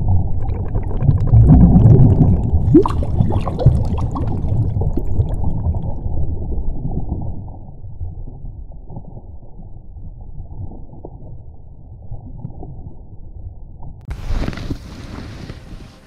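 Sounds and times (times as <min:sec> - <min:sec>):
underwater bubbling rumble: 0:00.0 - 0:14.1
short rising gurgles: 0:00.3 - 0:05.8.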